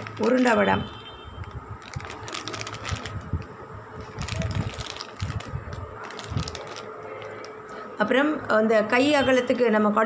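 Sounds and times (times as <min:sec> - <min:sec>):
plastic packets crinkling: 0:00.0 - 0:00.8, 0:01.4 - 0:07.7.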